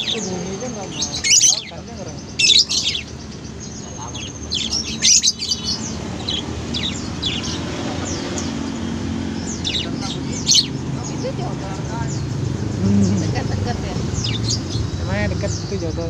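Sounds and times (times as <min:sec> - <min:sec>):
lovebirds chirping: 0:00.0 - 0:16.0
low background murmur: 0:00.0 - 0:16.0.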